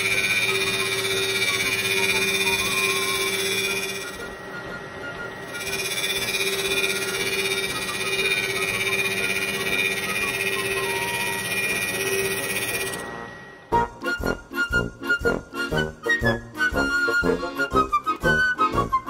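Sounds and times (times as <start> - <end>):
end mill rasping through wood: 0.0 - 4.4, 5.3 - 13.0
milling spindle running tone: 0.0 - 13.6.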